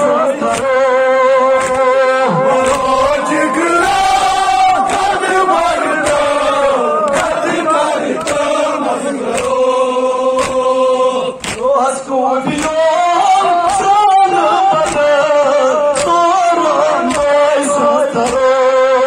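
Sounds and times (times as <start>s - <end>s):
men chanting in unison: 0.0s - 19.0s
chest-beating strikes: 1.6s - 7.5s.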